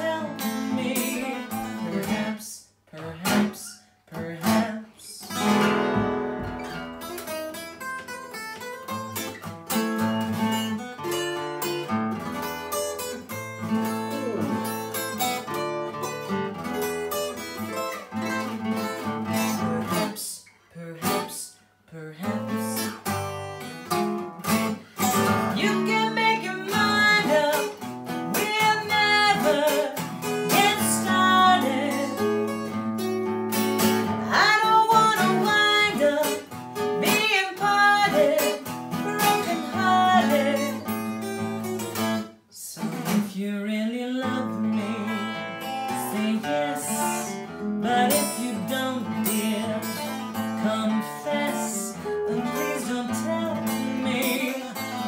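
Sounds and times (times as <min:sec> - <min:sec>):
woman singing: 0:00.0 - 0:05.4, 0:13.8 - 0:15.0, 0:19.2 - 0:23.0, 0:25.2 - 0:32.8, 0:34.0 - 0:41.2, 0:42.0 - 0:55.0
acoustic guitar strumming: 0:00.0 - 0:20.3, 0:21.0 - 0:21.6, 0:22.2 - 0:55.0.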